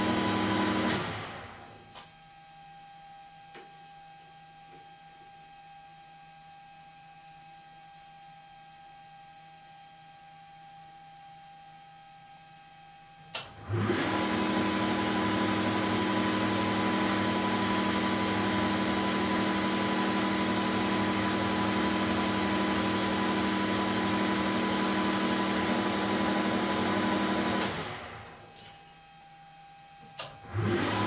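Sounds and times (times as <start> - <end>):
lathe humming and whining: 13.6 - 28.4.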